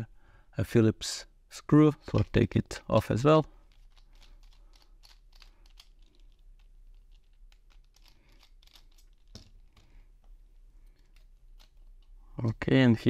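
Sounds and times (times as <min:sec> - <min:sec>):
screwdriver clicking and scraping: 0:03.4 - 0:12.2.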